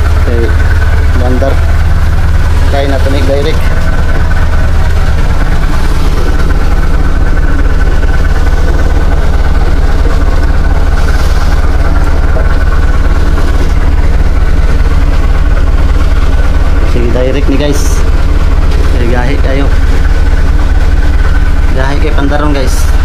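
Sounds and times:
boat engine idling: 0.0 - 23.0.

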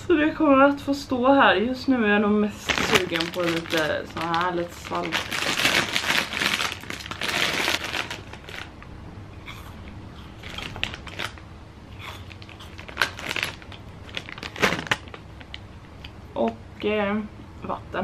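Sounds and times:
plastic crisp bag crinkling: 2.6 - 8.8, 10.3 - 11.4, 12.1 - 15.6.

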